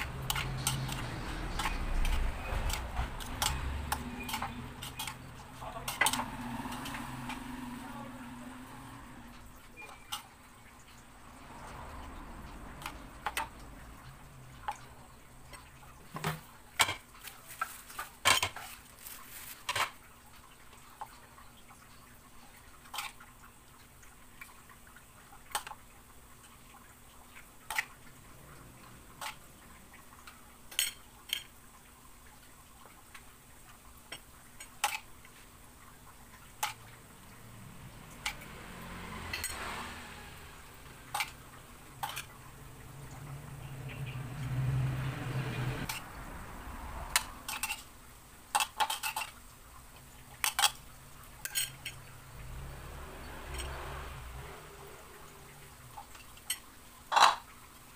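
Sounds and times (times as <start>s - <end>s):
ceramic plate and bowl clinking: 51.4s - 52.0s, 56.5s - 57.5s.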